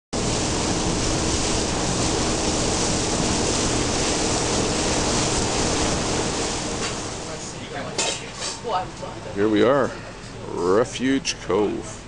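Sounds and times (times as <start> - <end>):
wind on microphone: 0.2 - 7.5
low hum: 0.2 - 12.0
water rushing past boat: 0.2 - 12.0.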